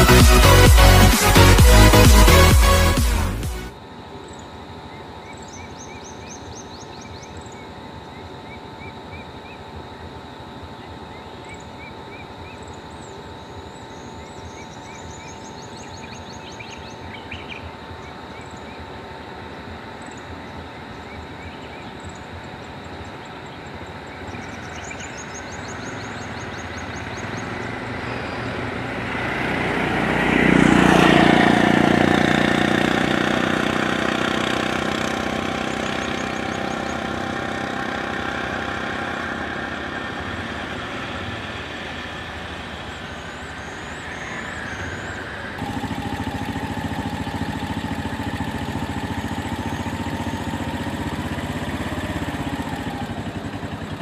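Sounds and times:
outdoor background noise: 1.1s - 54.0s
birds chirping: 4.1s - 54.0s
auto-rickshaw engine passing: 12.4s - 54.0s.

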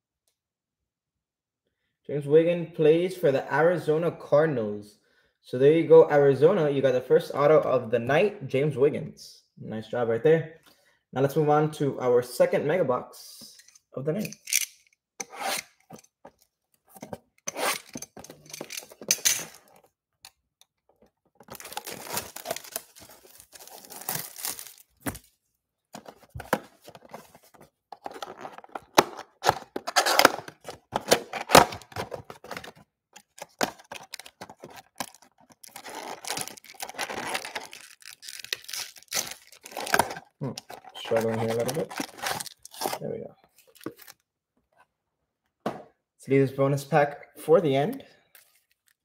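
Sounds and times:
cardboard rustling: 21.2s - 25.4s, 26.0s - 44.2s
plastic wrap tearing and crinkling: 21.4s - 25.3s, 28.0s - 43.0s
box cutter slitting plastic wrap: 21.5s - 25.2s, 28.3s - 43.0s.

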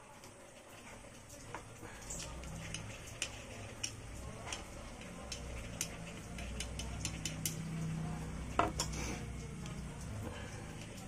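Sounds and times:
small tools clicking and tapping: 1.5s - 7.8s, 8.6s - 9.0s.

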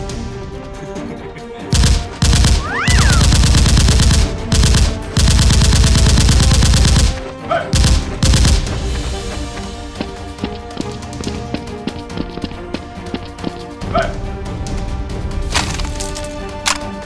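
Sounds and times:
background music: 0.0s - 17.0s
automatic gunfire bursts: 1.7s - 7.2s.

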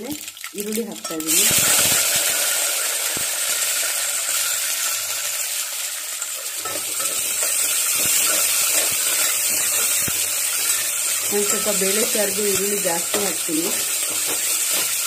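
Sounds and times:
onions sizzling in hot oil: 0.0s - 15.0s
metal ladle scraping a pot: 6.2s - 15.0s.

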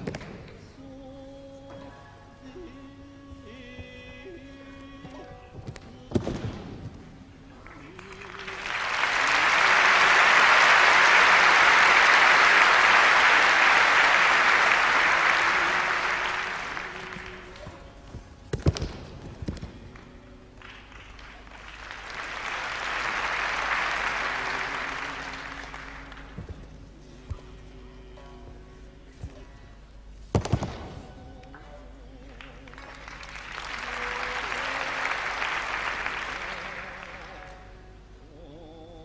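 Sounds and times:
audience applauding: 7.6s - 18.0s, 18.6s - 26.7s, 32.3s - 37.8s.

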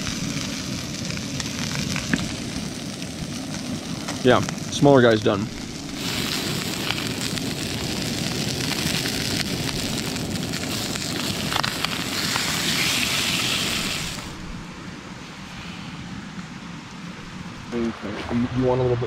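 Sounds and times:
fish sizzling in a pan: 0.0s - 14.4s.

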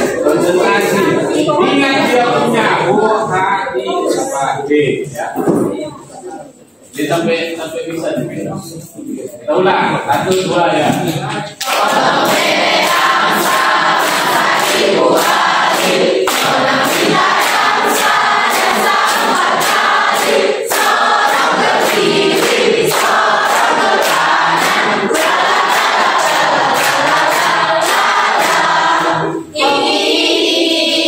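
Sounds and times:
group singing in unison: 0.0s - 3.5s, 11.5s - 31.0s
hand-clapped beat: 10.3s - 29.2s.

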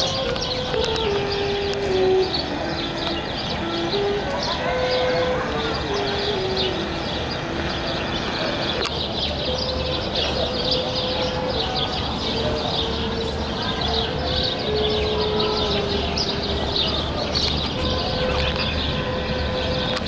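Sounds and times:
long held notes stepping in pitch: 0.0s - 8.9s
birds chirping: 0.0s - 20.0s
people noise: 0.0s - 20.0s
traffic: 0.0s - 20.0s.

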